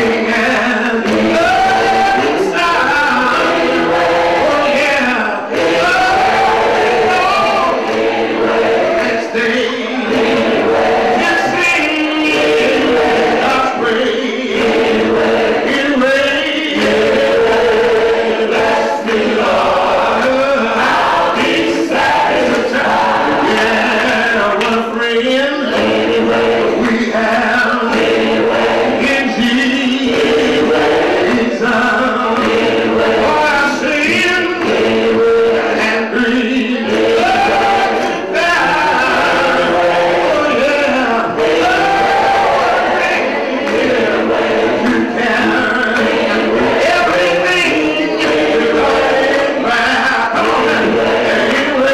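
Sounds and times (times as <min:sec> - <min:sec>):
man singing into a microphone: 0:00.0 - 0:07.9, 0:08.8 - 0:51.9
gospel choir singing: 0:00.0 - 0:51.9.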